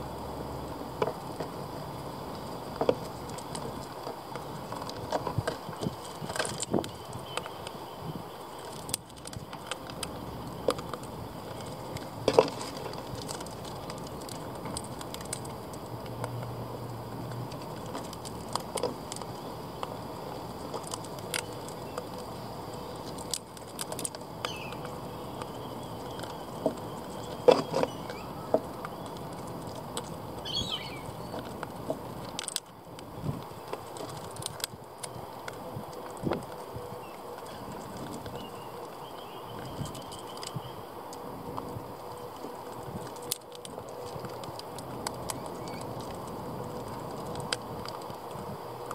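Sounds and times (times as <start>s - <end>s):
beaks tapping on wood: 17.2s - 32.7s
bird chirp: 24.4s - 29.2s, 30.4s - 31.4s, 38.3s - 40.9s.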